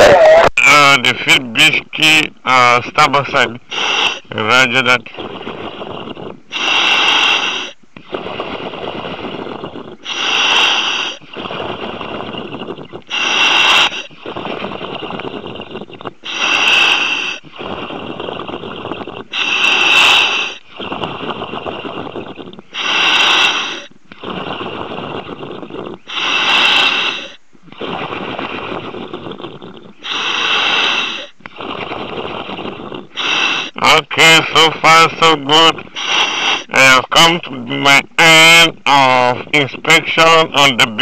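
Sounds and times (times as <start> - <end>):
steady hiss: 0.2 - 41.0
diver breathing gas rush: 3.3 - 38.0.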